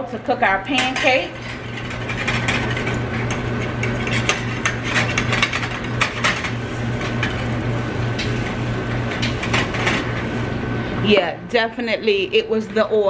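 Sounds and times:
steady low hum: 0:00.0 - 0:13.0
metal spatula scraping pan: 0:00.7 - 0:07.5.

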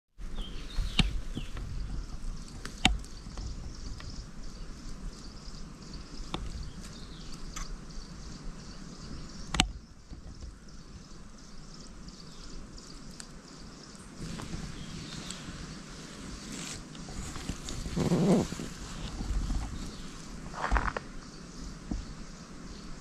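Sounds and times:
steady hiss: 0:00.2 - 0:23.0.

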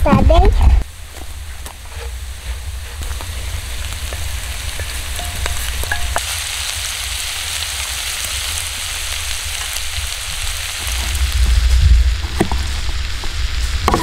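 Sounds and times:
food sizzling in a skillet: 0:00.8 - 0:14.0
wooden spoon scraping and stirring: 0:01.0 - 0:06.3.

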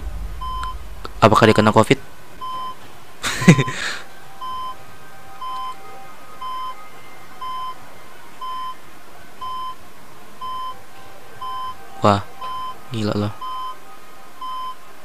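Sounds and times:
burst of noise: 0:00.0 - 0:03.3
patient monitor beeping: 0:02.4 - 0:02.8, 0:04.4 - 0:04.8, 0:05.4 - 0:05.8, 0:06.4 - 0:06.8, 0:07.4 - 0:07.8, 0:08.4 - 0:08.8, 0:09.4 - 0:09.8, 0:10.4 - 0:10.8, 0:11.4 - 0:11.8, 0:12.4 - 0:13.8, 0:14.4 - 0:14.8.

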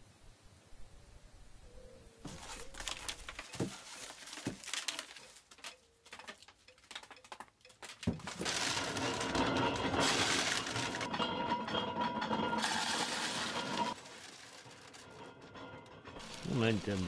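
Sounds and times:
corn husks rustling and tearing: 0:02.2 - 0:11.2, 0:12.6 - 0:15.5, 0:16.2 - 0:17.0
hand-cranked corn sheller rattling: 0:04.7 - 0:17.0.

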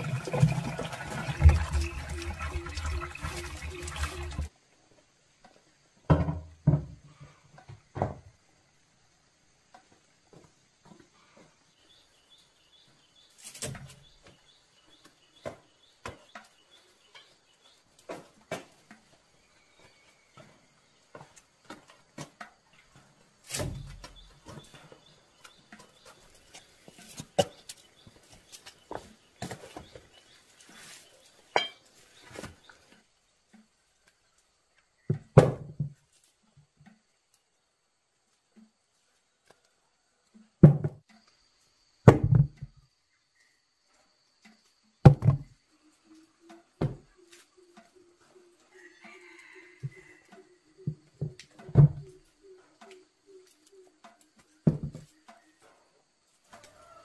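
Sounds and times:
knocks and rustles: 0:05.4 - 0:08.4, 0:54.0 - 0:55.8.

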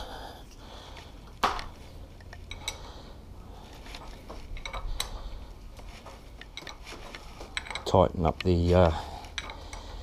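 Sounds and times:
spanner clicking on metal: 0:04.5 - 0:05.2, 0:06.4 - 0:06.8, 0:07.5 - 0:08.6, 0:09.3 - 0:10.0.

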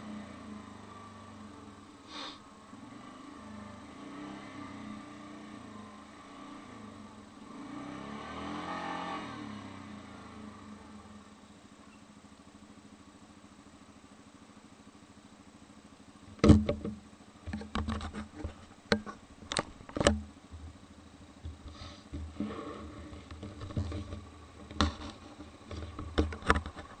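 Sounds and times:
atv engine running at low speed: 0:00.0 - 0:27.0
sharp knocks and thumps: 0:16.3 - 0:20.8, 0:21.4 - 0:27.0.

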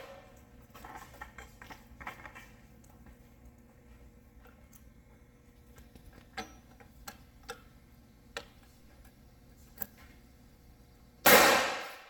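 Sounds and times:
loud gunshot with echo: 0:11.2 - 0:12.0.

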